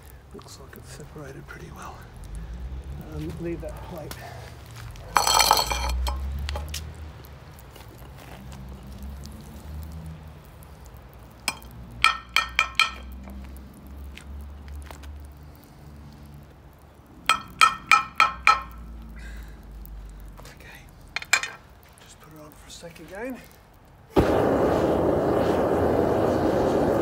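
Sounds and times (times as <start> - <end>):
metal spoon clinking on frying pan: 5.2 - 6.2.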